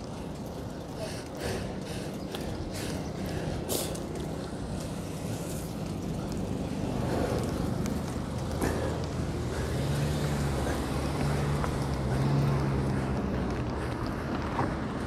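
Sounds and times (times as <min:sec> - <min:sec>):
motor vehicle engine humming: 0:00.0 - 0:15.0.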